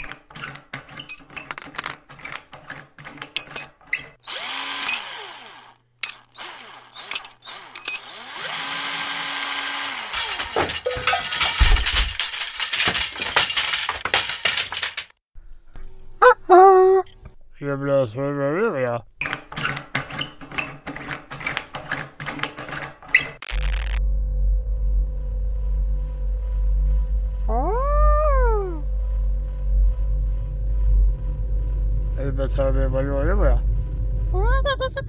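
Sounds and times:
rattling and clanking: 0.0s - 4.2s, 10.0s - 15.2s, 19.3s - 34.6s
power drill whirring: 4.2s - 10.4s
clicks and knocks: 10.2s - 15.2s.

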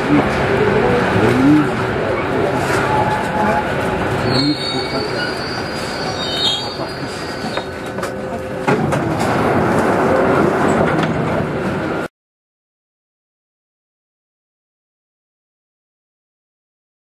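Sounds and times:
train rumble inside: 0.0s - 12.1s
high wheel squeal: 4.2s - 7.9s.

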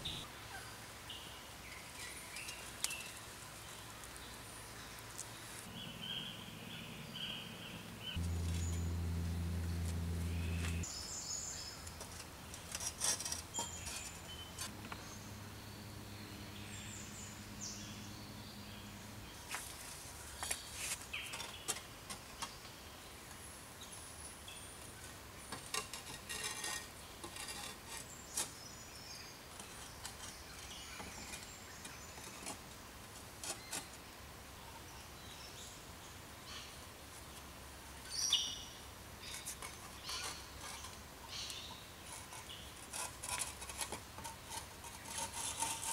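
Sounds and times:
birds chirping: 0.0s - 12.0s
faint low hum: 5.7s - 10.9s.

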